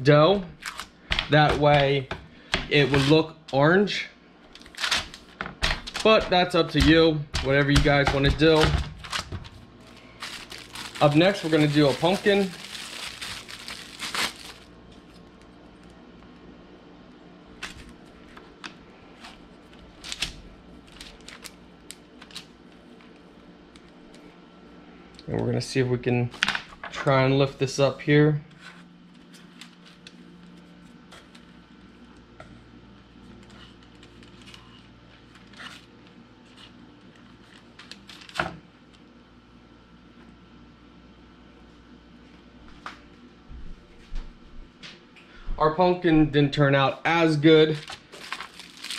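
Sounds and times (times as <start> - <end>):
plastic wrap crinkling: 7.8 - 15.9, 17.6 - 24.2, 29.0 - 31.8, 33.3 - 38.5, 47.7 - 48.9
paper rustling: 8.2 - 15.3, 17.6 - 23.2, 33.3 - 38.5, 47.7 - 48.9.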